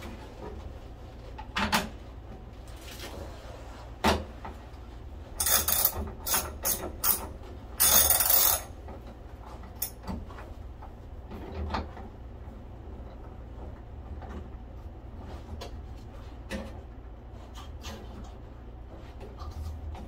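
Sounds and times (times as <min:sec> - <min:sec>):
ratchet wrench clicking: 0:05.4 - 0:07.2, 0:07.8 - 0:08.7.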